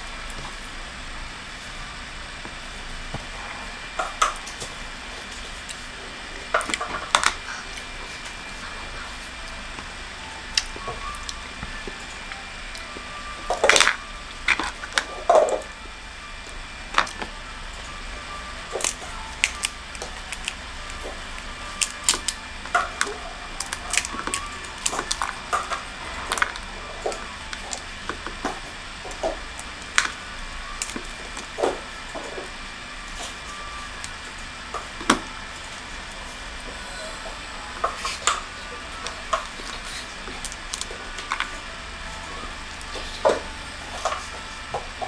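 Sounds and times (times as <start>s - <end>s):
dried pod shells cracking: 18.7s - 31.8s, 39.0s - 41.5s.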